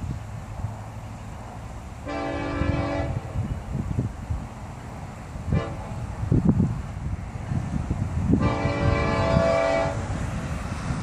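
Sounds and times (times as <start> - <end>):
locomotive air horn blast: 2.0 - 3.4, 5.5 - 6.2, 8.4 - 10.1
wind on microphone: 2.2 - 4.7, 5.4 - 11.0.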